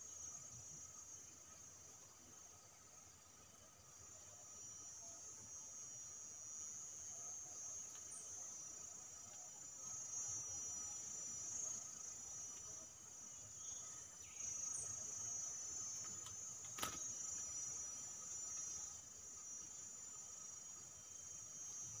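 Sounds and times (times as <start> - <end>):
insects trilling: 0.0 - 22.0
sharp click: 16.2 - 17.1.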